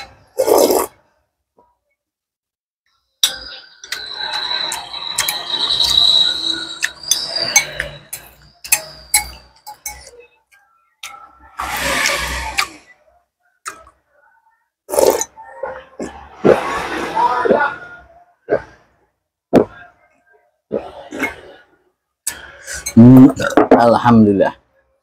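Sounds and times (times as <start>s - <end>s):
loud slurp: 0.4s - 1.0s, 14.9s - 15.3s
thin high-pitched squeal: 3.2s - 10.5s.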